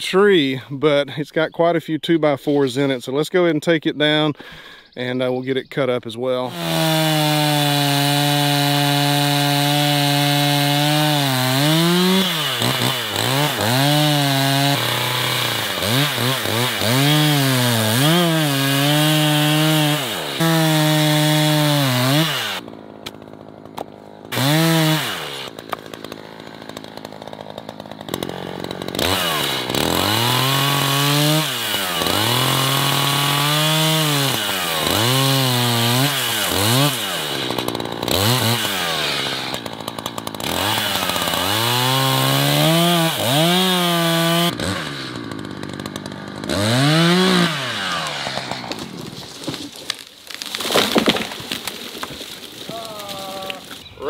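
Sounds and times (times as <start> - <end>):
chainsaw idling: 6.4 - 49.0
chainsaw cutting wood: 6.4 - 53.8.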